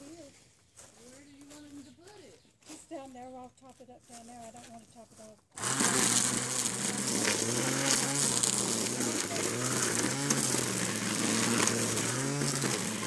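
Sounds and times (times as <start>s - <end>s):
small petrol engine running: 5.5s - 13.0s.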